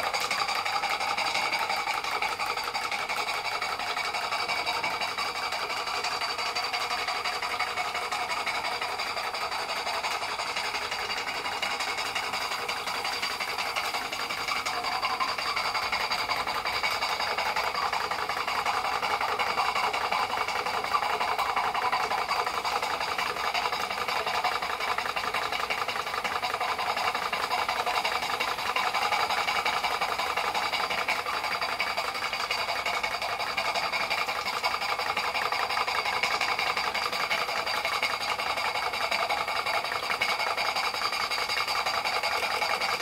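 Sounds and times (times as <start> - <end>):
steam engine running: 0.0 - 43.0.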